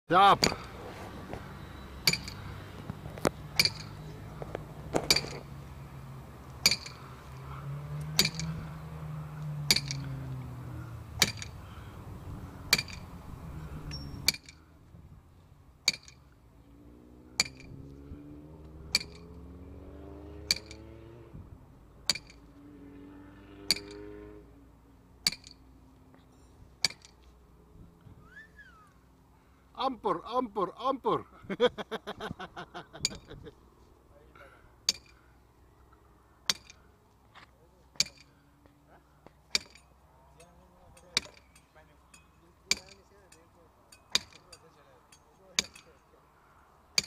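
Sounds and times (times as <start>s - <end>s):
sledgehammer striking steel stake: 0.3s - 0.8s, 2.0s - 2.4s, 3.5s - 4.0s, 4.9s - 5.5s, 6.6s - 7.0s, 8.1s - 8.7s, 9.6s - 10.2s, 11.2s - 11.6s, 12.7s - 13.1s, 13.9s - 14.6s, 15.8s - 16.3s, 17.4s - 17.8s, 18.9s - 19.4s, 20.4s - 20.9s, 22.0s - 22.4s, 23.7s - 24.1s, 25.2s - 25.6s, 26.8s - 27.2s, 34.8s - 35.2s, 36.4s - 36.8s, 38.0s - 38.3s, 39.5s - 46.0s.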